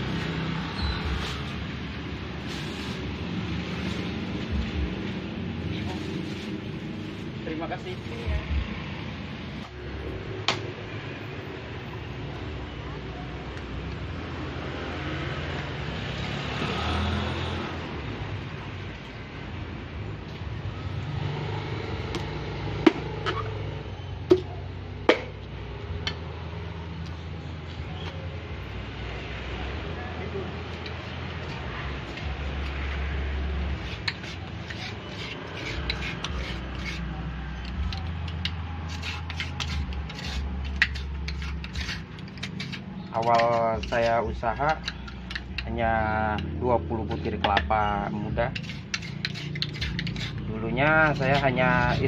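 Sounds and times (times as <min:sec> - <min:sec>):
vehicle engine passing by: 0:00.0 - 0:11.9, 0:14.0 - 0:46.0
knife scraping coconut flesh: 0:02.4 - 0:08.4, 0:30.7 - 0:46.6, 0:48.3 - 0:52.0.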